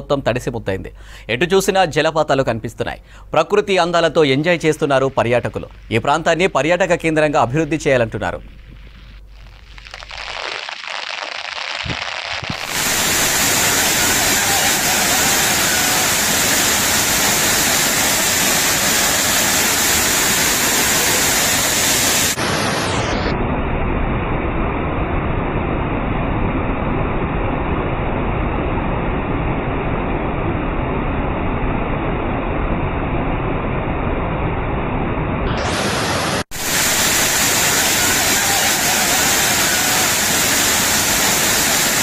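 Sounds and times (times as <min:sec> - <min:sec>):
waterfall rushing: 0:09.8 - 0:23.3, 0:35.5 - 0:42.0.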